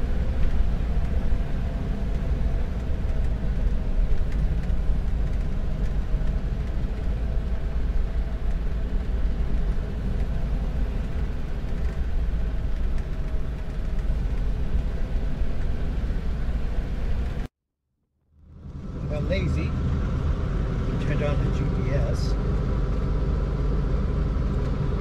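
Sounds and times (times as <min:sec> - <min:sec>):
car engine and road noise: 0:00.0 - 0:17.5, 0:18.3 - 0:25.0.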